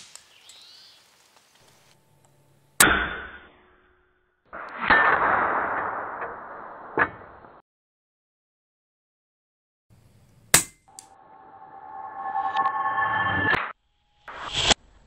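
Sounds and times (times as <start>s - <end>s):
noise: 0.0s - 2.8s, 4.5s - 7.6s, 9.9s - 15.0s.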